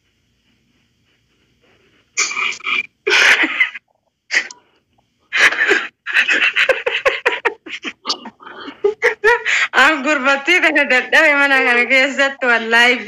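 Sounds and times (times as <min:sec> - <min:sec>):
woman laughing: 0:03.1 - 0:03.8, 0:05.3 - 0:11.8.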